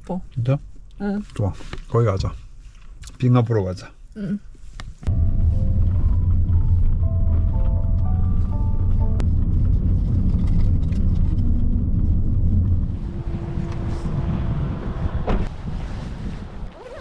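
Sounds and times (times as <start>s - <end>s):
car engine and tyres rumbling: 5.0s - 17.0s.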